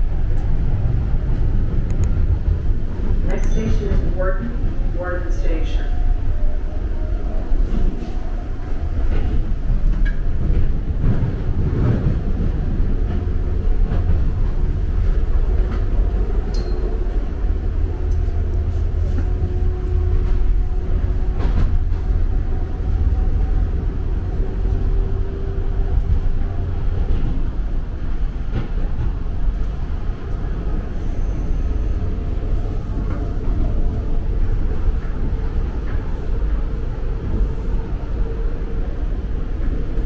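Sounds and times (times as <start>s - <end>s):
subway train rumbling: 0.0s - 40.0s.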